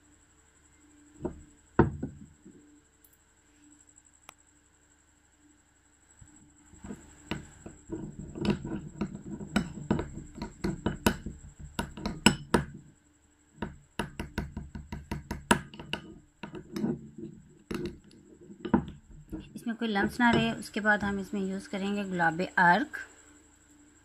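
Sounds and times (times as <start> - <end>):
metal spoon scraping glass bowl: 6.8 - 12.7.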